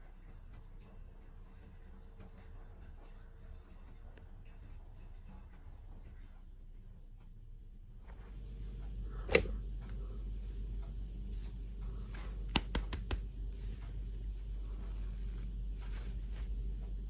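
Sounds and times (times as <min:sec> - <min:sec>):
steady low hum: 0:00.0 - 0:17.0
soft rustles: 0:13.5 - 0:17.0.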